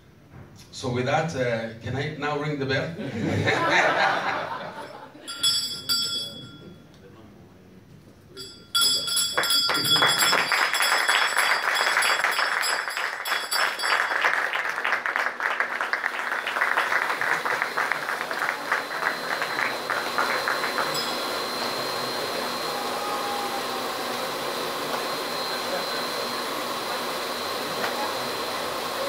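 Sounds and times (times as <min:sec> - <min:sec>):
brass hand bell ringing: 0:04.8 - 0:06.9, 0:08.4 - 0:14.6, 0:18.4 - 0:22.3
applause: 0:09.2 - 0:22.1
spark fountains hissing: 0:15.9 - 0:29.0
thin whine: 0:16.1 - 0:29.0.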